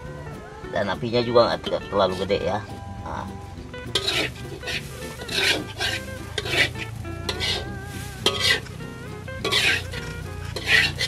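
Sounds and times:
metal spatula scraping wok: 3.8 - 11.0.

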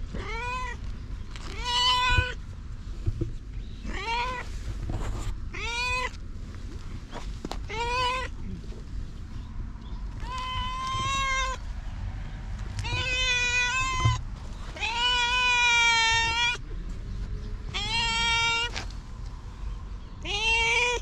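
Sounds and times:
cat meowing: 0.2 - 0.8, 1.5 - 2.4, 3.8 - 4.4, 7.7 - 8.4, 10.2 - 11.6, 12.8 - 14.2, 14.8 - 16.6, 17.7 - 18.7, 20.2 - 21.0.

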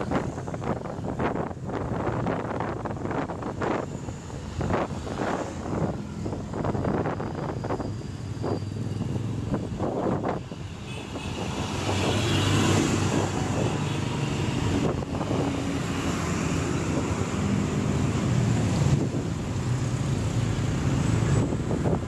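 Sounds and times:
traffic engines running: 0.0 - 22.0
wind gusting on microphone: 0.0 - 22.0.

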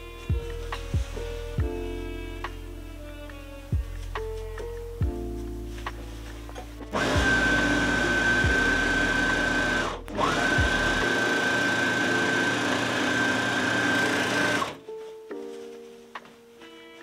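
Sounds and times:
overlocker stitching with whine: 6.9 - 14.8.

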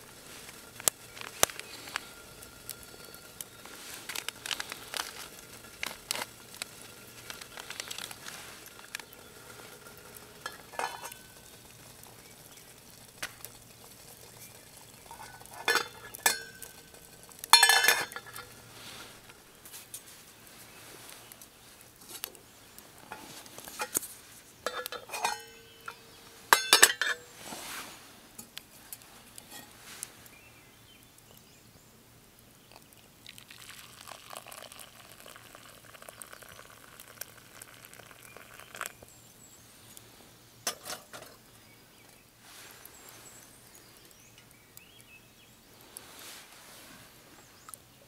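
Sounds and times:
steady hiss: 0.0 - 48.0
metal cookware clattering: 8.8 - 11.4, 14.4 - 18.5, 24.6 - 27.3, 40.7 - 41.4.

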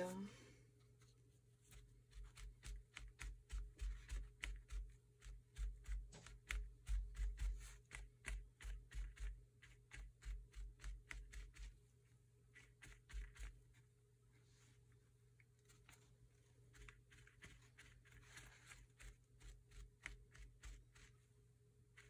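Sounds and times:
paper towel dabbing on paper: 0.9 - 11.8, 12.5 - 13.8, 15.6 - 21.2.

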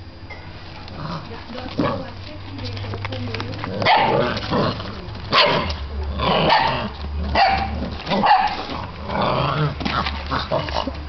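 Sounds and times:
puppy barking and yipping: 6.5 - 8.6.

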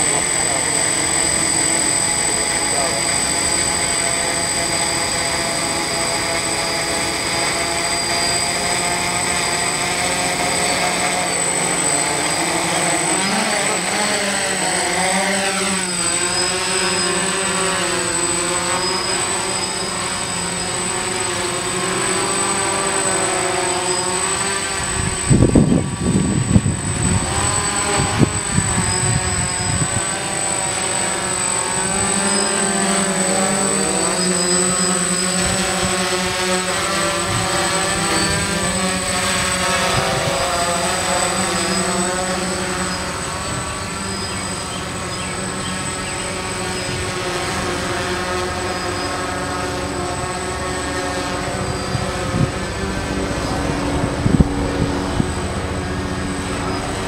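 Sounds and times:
drone motors and propellers whining: 0.0 - 57.0
wind rumbling on microphone: 24.7 - 30.2, 37.1 - 40.9, 51.3 - 57.0.

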